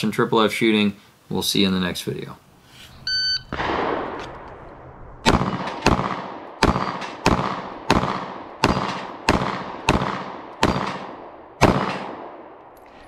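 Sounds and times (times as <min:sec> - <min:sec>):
pistol shots: 0:03.5 - 0:04.4, 0:05.2 - 0:12.6.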